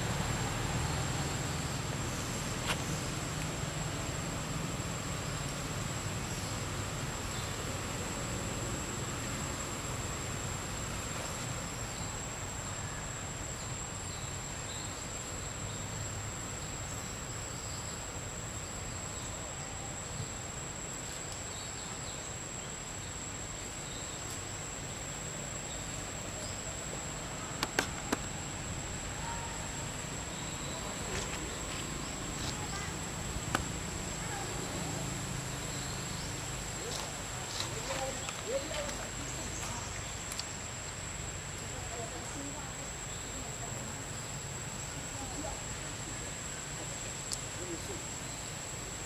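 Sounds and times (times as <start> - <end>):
insect high-pitched drone: 0.0 - 49.0
low background noise: 0.0 - 49.0
sharp clicks: 27.6 - 28.3.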